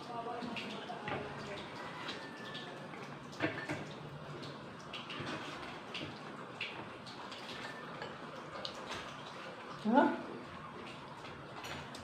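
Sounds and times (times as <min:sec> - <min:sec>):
utensils clinking on dishes: 0:03.3 - 0:03.9, 0:07.2 - 0:09.2, 0:11.5 - 0:12.0.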